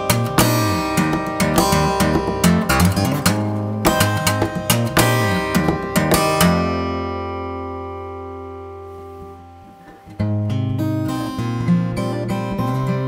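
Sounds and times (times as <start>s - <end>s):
percussive hits on guitar: 0.0s - 6.9s
fingerstyle acoustic guitar: 0.0s - 13.0s.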